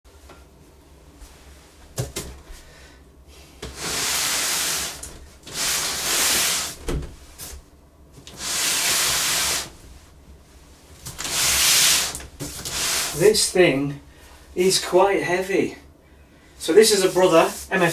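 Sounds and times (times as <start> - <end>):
hands scraping cardboard box: 3.6 - 6.8, 8.3 - 9.7, 11.2 - 13.2.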